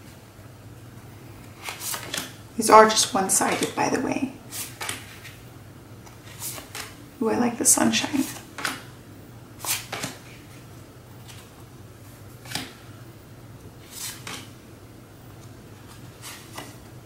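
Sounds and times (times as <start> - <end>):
paper cards swishing: 1.5 - 2.4, 4.5 - 5.4, 6.2 - 7.0, 9.6 - 10.6, 12.4 - 12.8, 13.8 - 14.6, 15.8 - 16.9.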